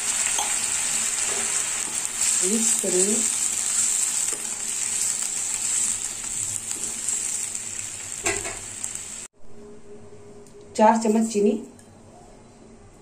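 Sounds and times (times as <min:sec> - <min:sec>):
milk bubbling and sizzling in pan: 0:00.0 - 0:09.3.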